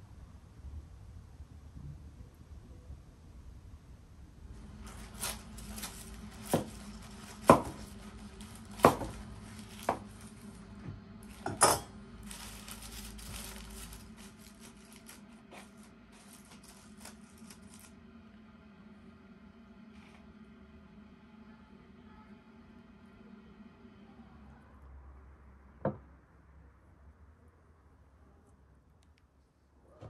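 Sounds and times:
knife scraping foil: 4.6s - 10.6s, 12.2s - 17.9s.

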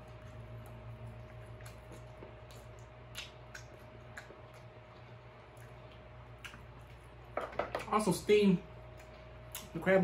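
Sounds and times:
chewing with sharp clicks: 0.0s - 7.1s, 8.9s - 9.8s.

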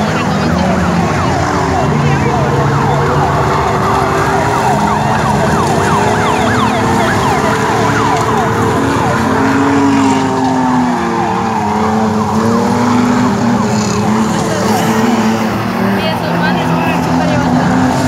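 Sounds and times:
truck engines revving: 0.0s - 18.0s.

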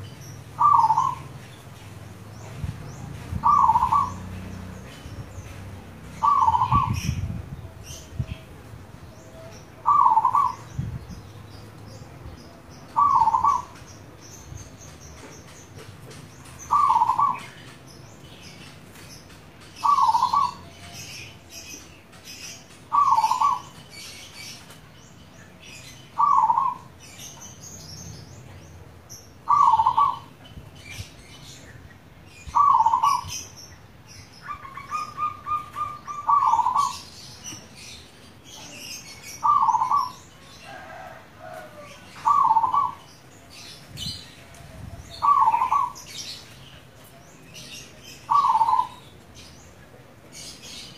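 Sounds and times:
small birds chirping: 0.0s - 50.9s
dove cooing: 0.6s - 1.3s, 3.2s - 4.2s, 6.2s - 7.2s, 9.4s - 10.7s, 13.0s - 13.8s, 16.7s - 17.5s, 19.8s - 20.9s, 22.9s - 23.7s, 26.2s - 26.9s, 29.5s - 30.3s, 32.6s - 33.4s, 34.4s - 37.1s, 39.4s - 40.1s, 40.7s - 43.0s, 44.4s - 46.1s, 48.3s - 49.0s.

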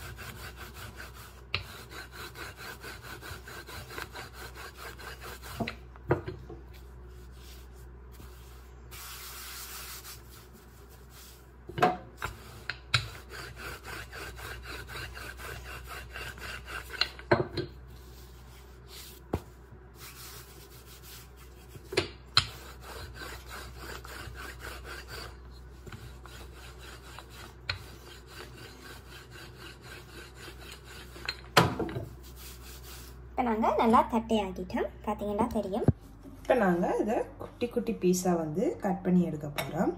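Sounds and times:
rolling pin rubbing on dough: 0.0s - 5.8s, 6.7s - 11.4s, 12.2s - 33.2s.

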